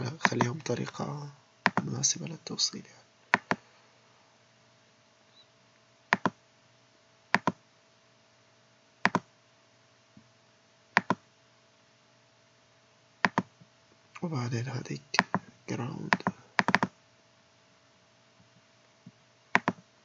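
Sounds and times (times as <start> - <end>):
faint steady hum: 0.0 - 20.0
computer mouse clicking: 0.2 - 0.7, 1.6 - 2.4, 3.3 - 3.6, 6.1 - 6.4, 7.4 - 7.6, 9.0 - 9.3, 11.0 - 11.2, 13.2 - 13.5, 15.2 - 15.5, 16.1 - 16.9, 19.6 - 19.8.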